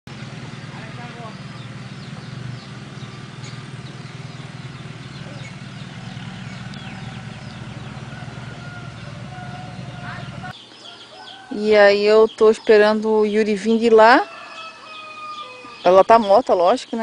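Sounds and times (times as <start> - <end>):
small engine idling: 0.1 - 10.6
small birds chirping: 0.1 - 17.0.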